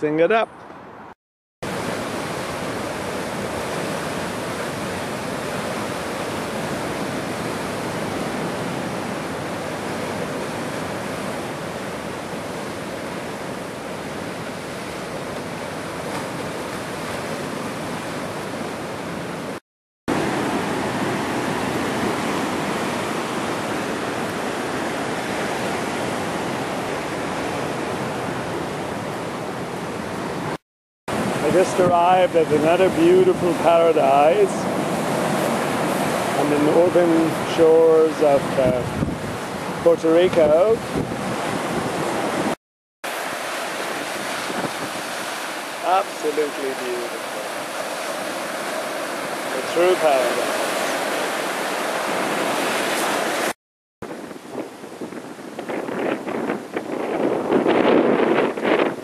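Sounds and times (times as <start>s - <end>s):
surf breaking over rocks: 30.4s - 59.0s.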